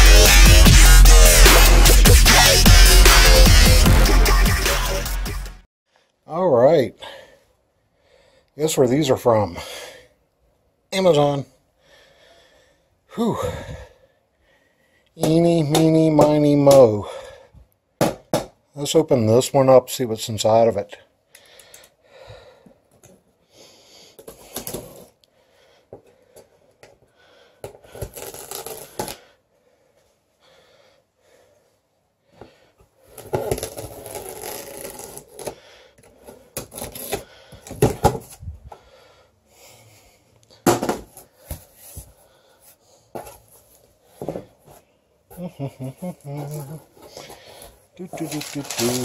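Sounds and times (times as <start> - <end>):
knife slitting packing tape: 27.9 - 29.2, 33.1 - 35.6, 36.4 - 37.8, 48.2 - 49.0.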